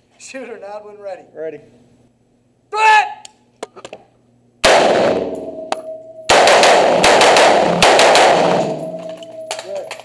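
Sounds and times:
rifle shots echoing: 4.6s - 5.7s, 6.3s - 9.7s.

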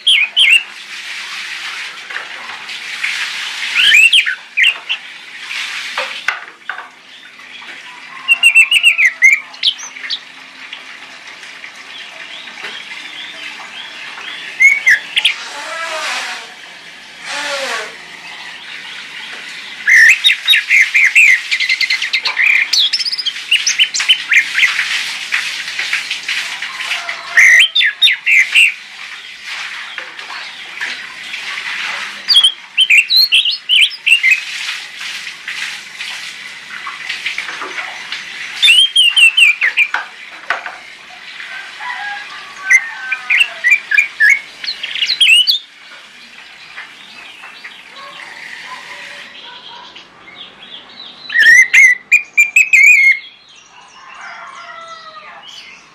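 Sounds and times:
bird singing whistled notes: 3.8s - 4.8s, 14.3s - 15.3s, 19.9s - 24.4s, 32.3s - 34.4s, 38.6s - 39.9s, 43.4s - 45.6s, 51.2s - 53.4s.

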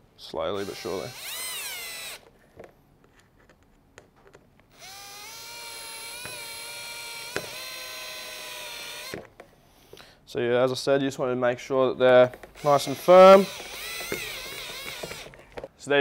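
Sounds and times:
cordless drill motor whining: 0.5s - 2.3s, 4.7s - 9.3s, 12.3s - 15.6s.

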